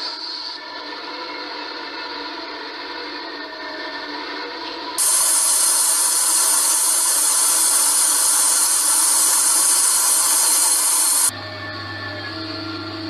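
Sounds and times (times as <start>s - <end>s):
loud steady hiss: 5.0s - 11.3s.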